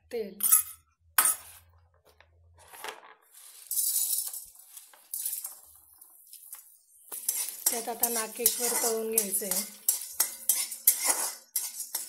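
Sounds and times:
dried buds rattling in metal pan: 3.4s - 12.0s.

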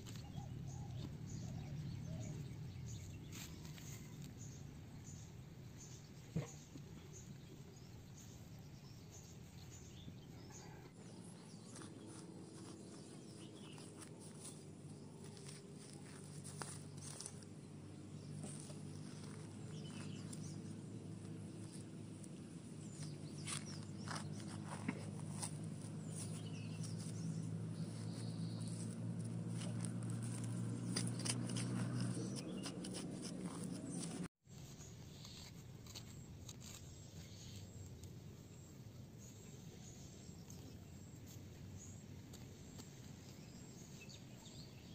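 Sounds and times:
scraping wet mud: 10.8s - 38.0s.

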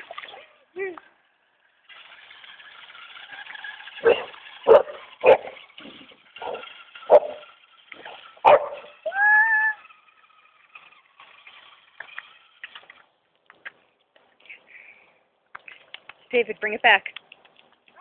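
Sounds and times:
toy truck electric motor whining: 0.0s - 13.2s.

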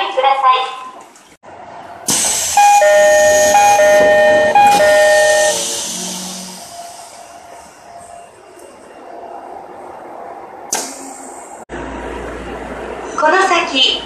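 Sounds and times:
two-note door chime: 2.6s - 5.8s
doors shutting knock: 2.9s - 5.5s.

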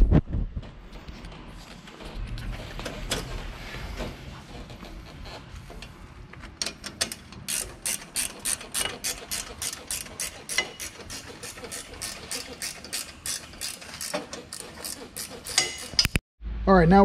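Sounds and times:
ratchet wrench clicking: 6.6s - 16.2s.

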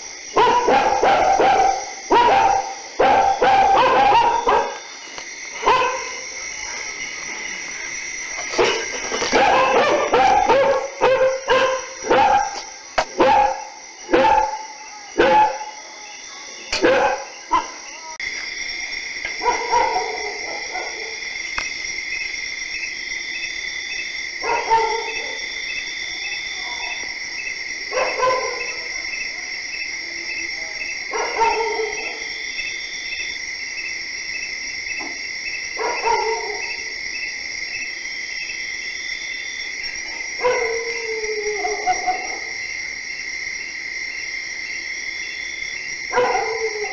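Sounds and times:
insects chirping: 0.0s - 46.9s
dog barking: 0.3s - 4.9s, 5.6s - 6.8s, 8.6s - 15.8s, 16.7s - 17.8s, 19.4s - 21.2s, 24.4s - 25.6s, 27.9s - 29.0s, 30.8s - 32.4s, 35.7s - 36.9s, 40.1s - 42.6s, 46.1s - 46.9s.

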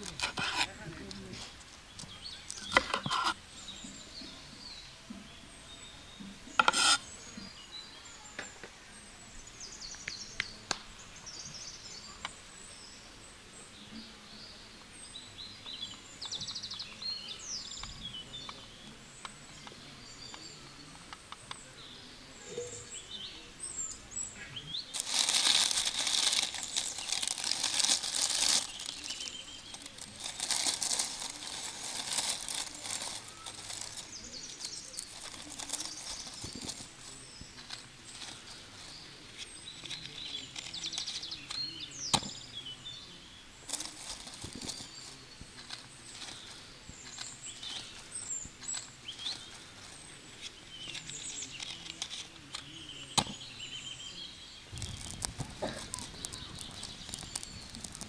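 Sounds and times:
small birds chirping: 0.0s - 58.0s
loud crackling hiss: 24.8s - 42.5s, 43.4s - 58.0s.

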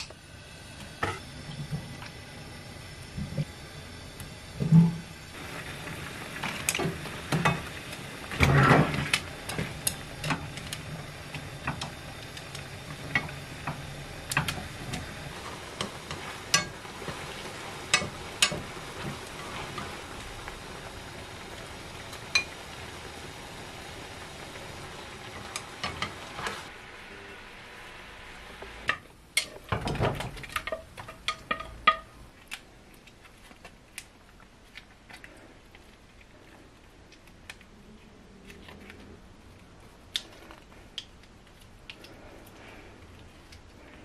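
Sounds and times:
broth simmering in a pan: 0.0s - 37.7s, 39.4s - 44.0s.

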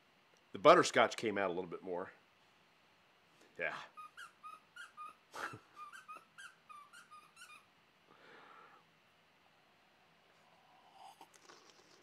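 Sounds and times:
squeaky dog toy squeaking: 4.0s - 7.7s.

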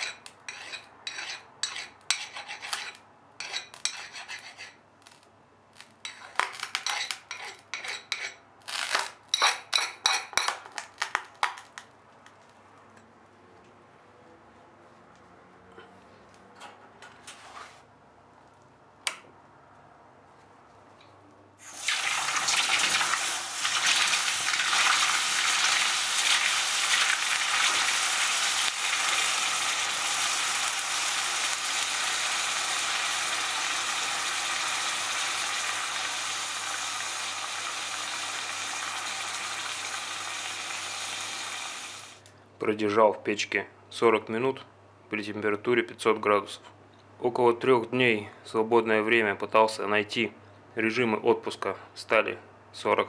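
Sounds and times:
hot steel quenching sizzle: 21.6s - 42.3s.

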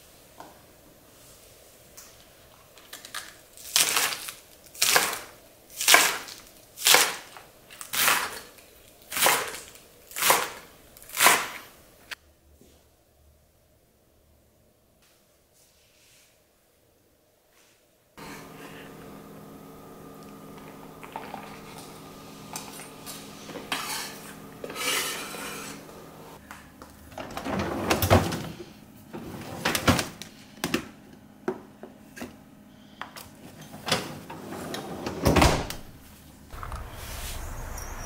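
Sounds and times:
steady hum: 18.2s - 26.4s, 35.8s - 38.0s.

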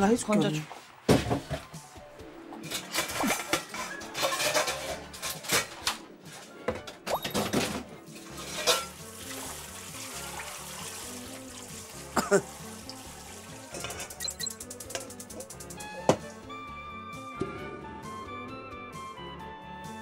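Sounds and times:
background music: 0.0s - 20.0s
dishes and utensils clattering: 2.6s - 9.2s, 13.7s - 15.1s
water running from tap: 8.2s - 16.3s.

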